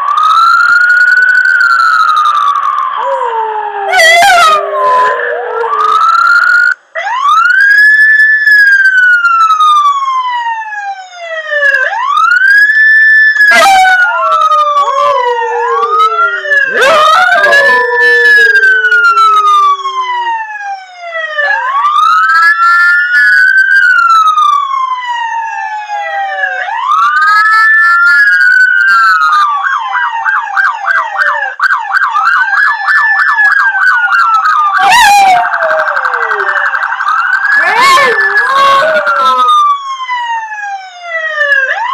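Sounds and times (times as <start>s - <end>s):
wailing siren: 0.0s - 41.9s
dog howling: 3.0s - 6.2s, 13.5s - 20.4s, 34.8s - 36.8s, 37.4s - 39.6s.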